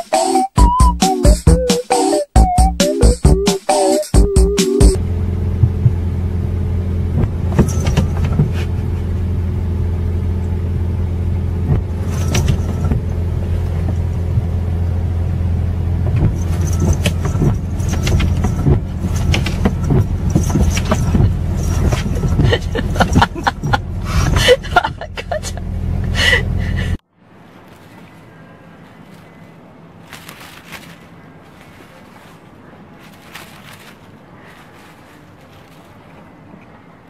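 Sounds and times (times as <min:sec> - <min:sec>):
car engine idling: 0:04.2 - 0:27.0.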